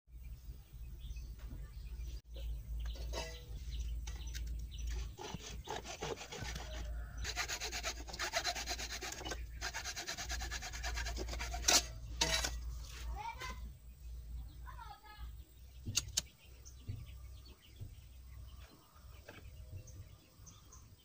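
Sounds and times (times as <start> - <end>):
hacksaw sawing plastic pipe: 4.9 - 12.6.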